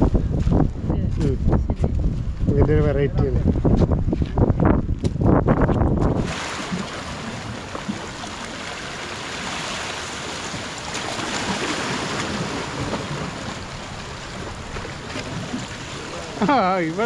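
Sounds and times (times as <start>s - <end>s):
sea waves washing over rocks: 6.0s - 17.0s.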